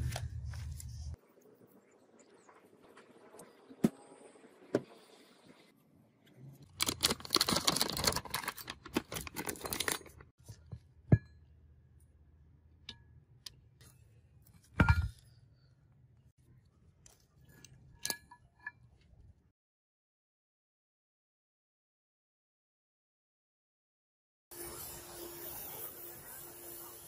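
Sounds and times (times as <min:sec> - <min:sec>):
paper rustling and crackling: 0:06.7 - 0:10.2.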